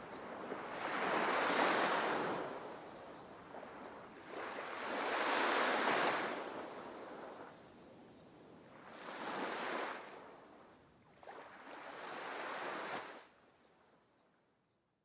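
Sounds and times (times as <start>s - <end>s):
waves washing in: 0.5s - 2.8s, 3.5s - 7.6s.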